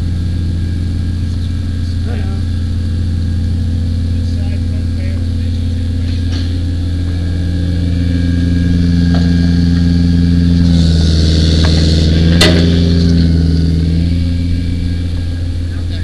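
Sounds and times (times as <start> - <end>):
truck engine running: 0.0 - 16.0.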